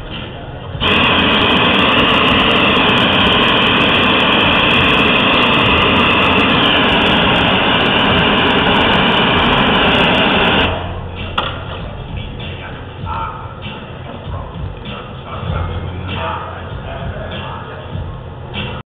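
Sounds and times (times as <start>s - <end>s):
gas torch flame rushing: 0.7s - 11.5s.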